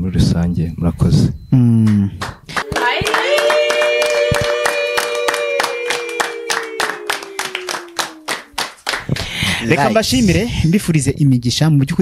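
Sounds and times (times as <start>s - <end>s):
hands clapping quickly: 1.8s - 9.6s.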